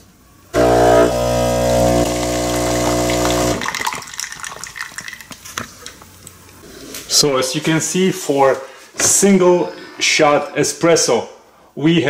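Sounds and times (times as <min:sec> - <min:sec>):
espresso machine pump humming: 0:00.6 - 0:03.7
coffee dripping into cup: 0:01.9 - 0:05.4.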